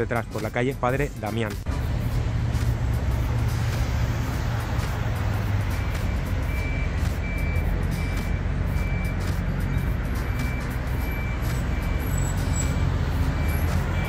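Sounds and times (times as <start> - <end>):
low rumble of engines and traffic: 0.0 - 14.0
reversing alarm beeping: 5.4 - 14.0.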